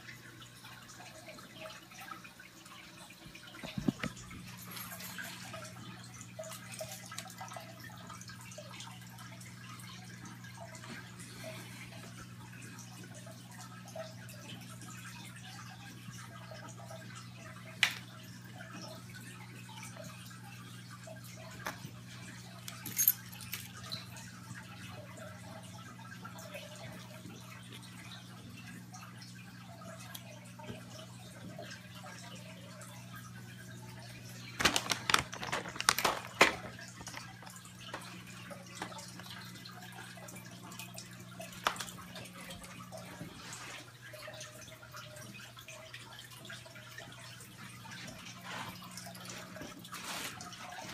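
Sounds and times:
aquarium equipment hum: 0:00.0 - 0:50.9
water trickling and dripping: 0:00.0 - 0:50.9
clicks and rattles: 0:34.6 - 0:38.1.

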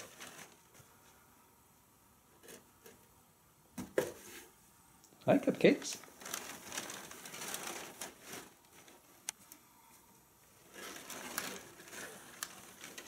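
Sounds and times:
cats rustling in tent and paper: 0:00.0 - 0:01.0, 0:05.7 - 0:09.2, 0:10.5 - 0:13.0.

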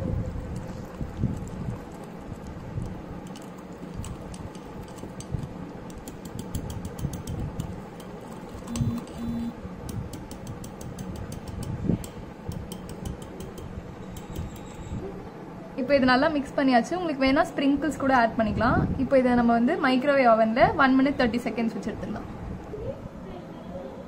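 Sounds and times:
whisk clicking against mug: 0:00.5 - 0:08.9, 0:09.9 - 0:14.9.

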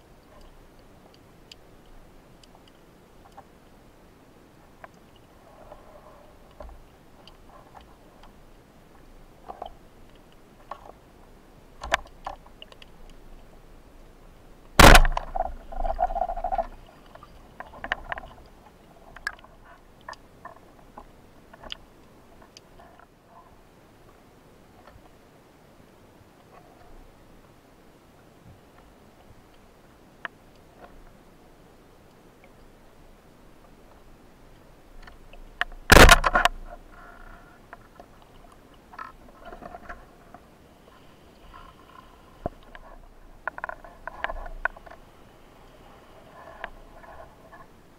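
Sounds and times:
speargun firing crack: 0:14.8 - 0:15.3, 0:35.9 - 0:36.4
faint clicks and rattles: 0:14.9 - 0:23.2, 0:41.5 - 0:45.1.

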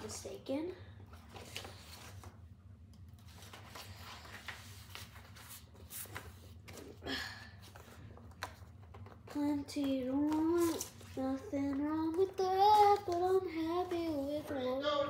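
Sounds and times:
paper sleeves rustling: 0:01.1 - 0:02.4, 0:03.1 - 0:07.0, 0:10.1 - 0:14.8.

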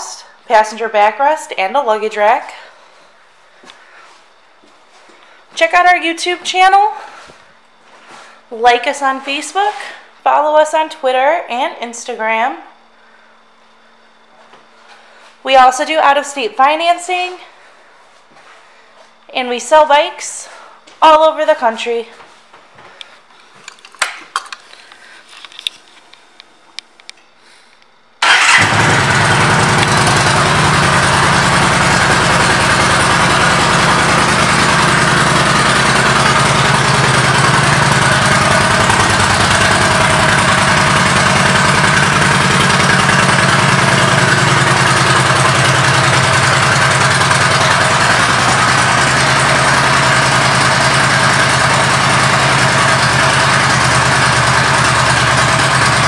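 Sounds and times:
motorcycle engine starting and idling: 0:28.2 - 0:56.0.

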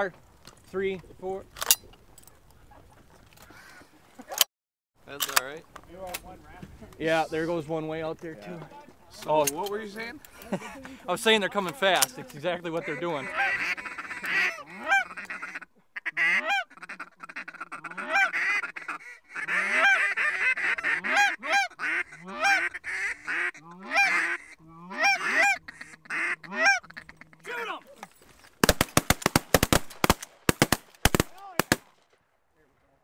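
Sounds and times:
geese honking: 0:09.8 - 0:28.1
shotgun blasts: 0:28.6 - 0:32.2.

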